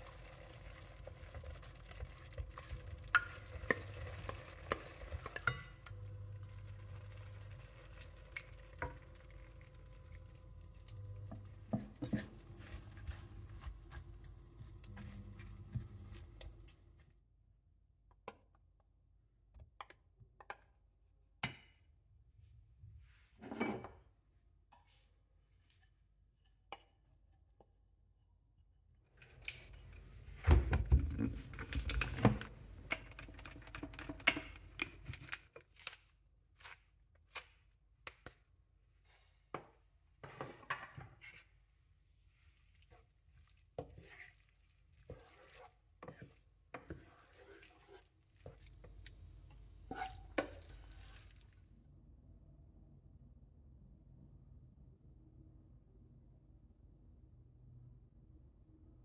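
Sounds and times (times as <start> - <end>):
utensil stirring sticky rice in pan: 0.0 - 16.8, 32.9 - 37.6, 42.3 - 49.2.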